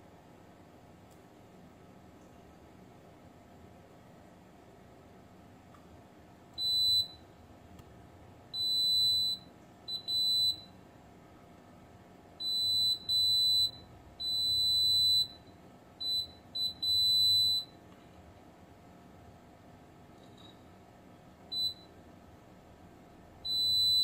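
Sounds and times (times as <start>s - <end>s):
multimeter continuity beeps: 6.6s - 7.3s, 8.5s - 10.8s, 12.4s - 17.8s, 21.5s - 22.0s, 23.4s - 24.0s.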